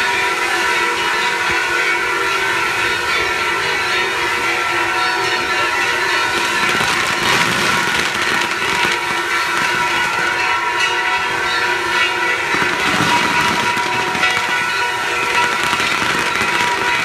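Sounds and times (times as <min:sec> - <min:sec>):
fireworks hissing: 0:05.9 - 0:17.0.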